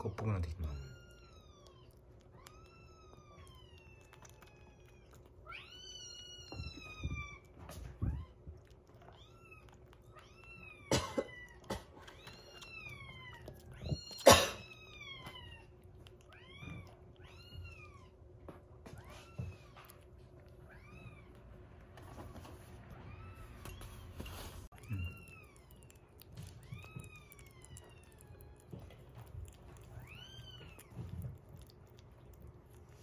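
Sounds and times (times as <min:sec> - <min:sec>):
kitten mewing: 0:08.1 - 0:18.1, 0:24.7 - 0:33.0.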